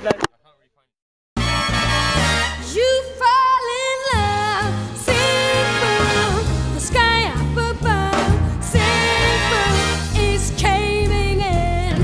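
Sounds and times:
person singing: 0:02.8 - 0:12.0.

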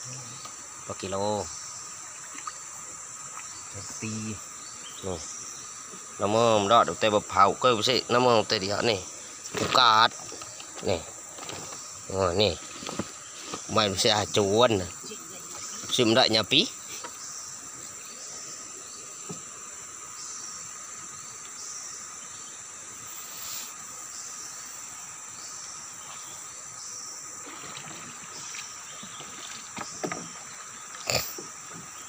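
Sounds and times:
insects droning: 0:00.0 - 0:32.0
knocks in wooden boat: 0:29.0 - 0:30.4.

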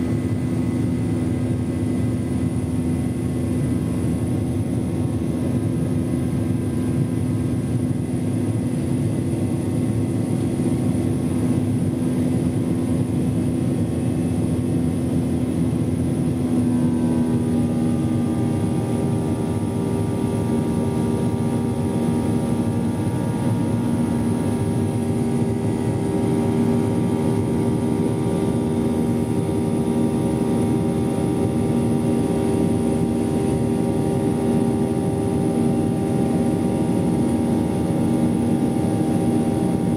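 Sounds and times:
jet engine drone in cabin: 0:00.0 - 0:39.9.

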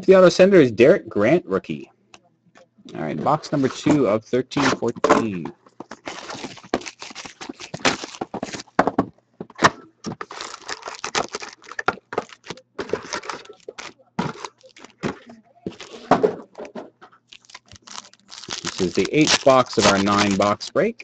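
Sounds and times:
foil wrappers crinkling and tearing: 0:05.9 - 0:08.8, 0:10.2 - 0:15.1, 0:15.7 - 0:16.1, 0:17.3 - 0:20.7.

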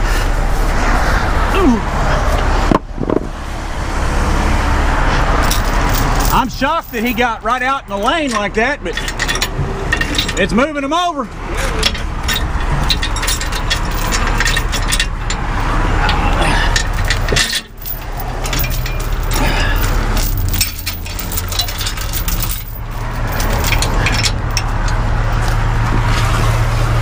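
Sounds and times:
diesel engine hum: 0:00.0 - 0:27.0
tow chains clinking: 0:05.3 - 0:26.0.

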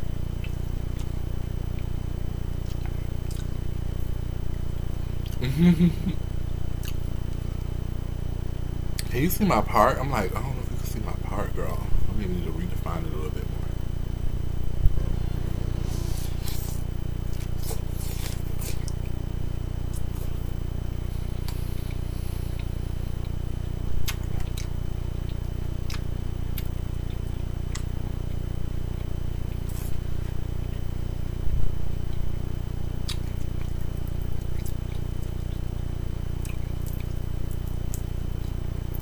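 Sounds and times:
steady low hum: 0:00.0 - 0:39.0
chewing: 0:00.4 - 0:02.0, 0:02.6 - 0:03.6, 0:06.8 - 0:07.0, 0:16.0 - 0:19.2, 0:24.0 - 0:27.9, 0:33.0 - 0:39.0.

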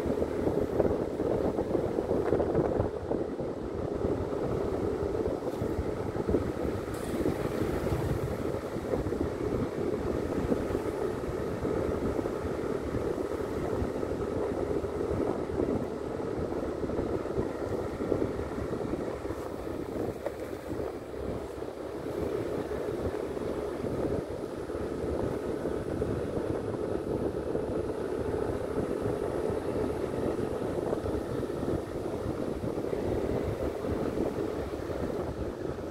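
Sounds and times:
tyres on road: 0:00.0 - 0:35.9
wind on microphone: 0:00.0 - 0:35.9.

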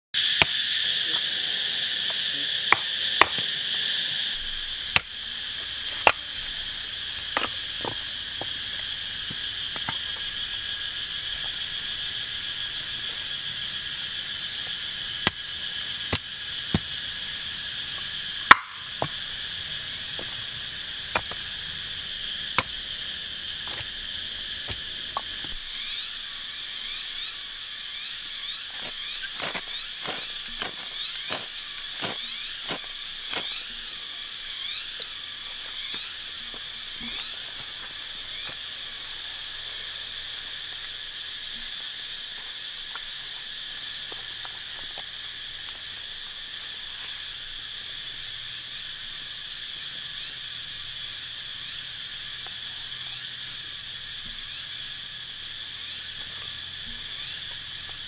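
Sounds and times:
high insect chorus: 0:00.2 - 0:58.0
knife splitting kindling: 0:18.5 - 0:19.2, 0:21.0 - 0:21.6, 0:22.2 - 0:25.9, 0:28.6 - 0:33.7
ferrocerium rod scraping: 0:22.5 - 0:25.8.

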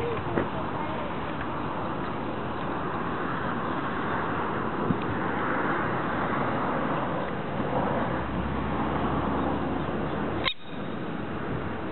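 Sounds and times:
distant traffic: 0:00.0 - 0:11.9.

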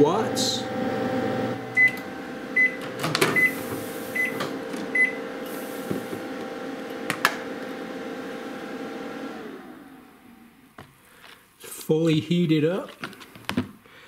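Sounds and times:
microwave hum: 0:00.0 - 0:10.8.

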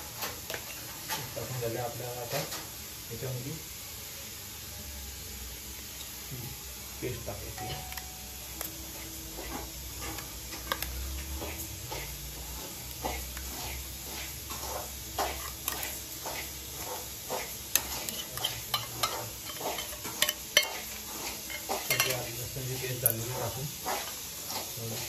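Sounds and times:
mixing chicken in a bowl: 0:08.6 - 0:25.0.

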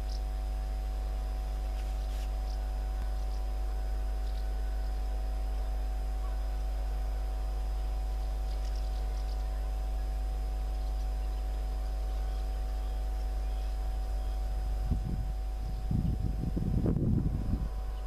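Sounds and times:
faint bird chirps: 0:00.0 - 0:00.7, 0:01.3 - 0:16.4
distant locomotive hum: 0:00.0 - 0:18.0.

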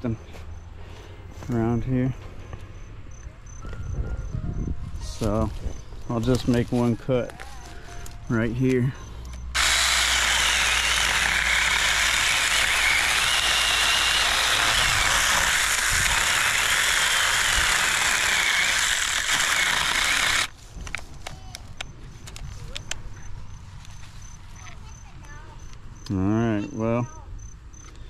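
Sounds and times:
electric chainsaw cutting branch: 0:09.5 - 0:20.5.

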